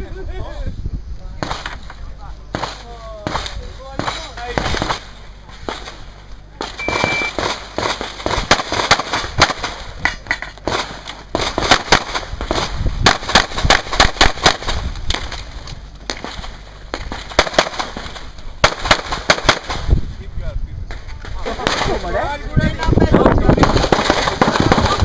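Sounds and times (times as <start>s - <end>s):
pistol rapid shots: 6.6s - 9.9s, 10.7s - 15.2s, 16.2s - 19.9s, 23.6s - 25.0s
shot timer beep: 6.8s - 7.4s.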